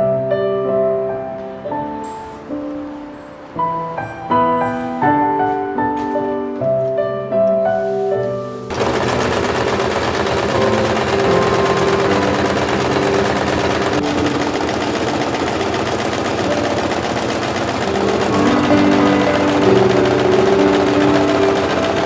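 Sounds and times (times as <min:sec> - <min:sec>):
soft piano music: 0:00.0 - 0:22.0
sewing machine whirring: 0:08.7 - 0:22.0.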